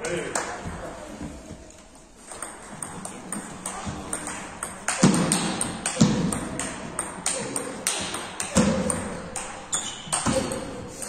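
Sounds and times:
ping pong ball hitting paddles: 0:02.2 - 0:11.0
ball bouncing on table: 0:02.3 - 0:11.0.

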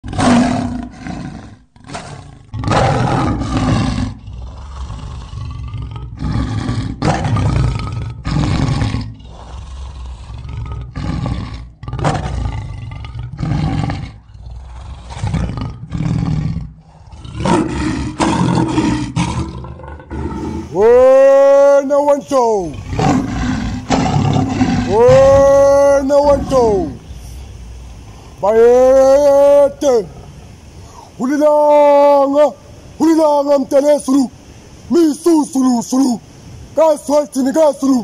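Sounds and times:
lion roaring and grunting: 0:00.0 - 0:27.4.

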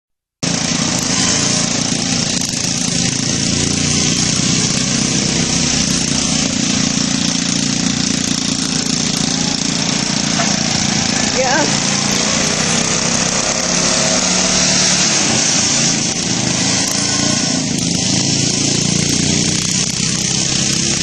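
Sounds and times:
small gasoline engines running: 0:00.4 - 0:21.0.

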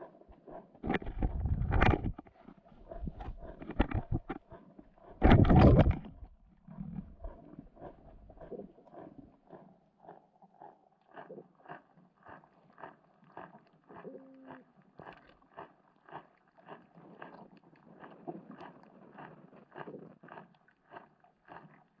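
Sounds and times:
muffled underwater knocks: 0:00.8 - 0:04.4, 0:05.2 - 0:06.3.

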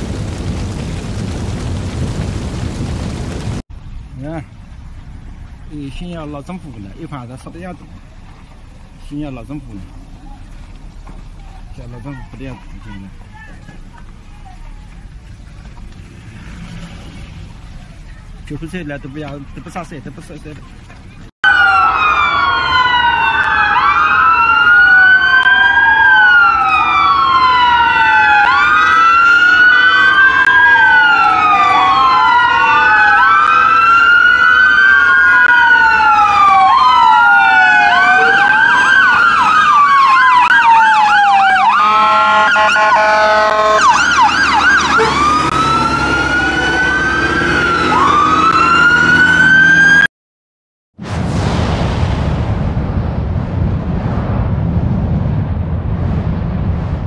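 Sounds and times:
emergency sirens wailing: 0:21.4 - 0:50.1
siren rapid yelp: 0:21.4 - 0:50.1.

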